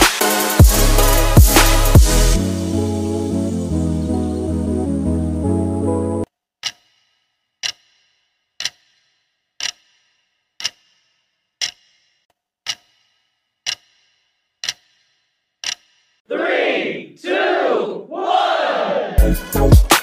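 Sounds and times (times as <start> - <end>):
clock-like ticks: 6.6 - 16.2
people shouting: 16.3 - 19.3.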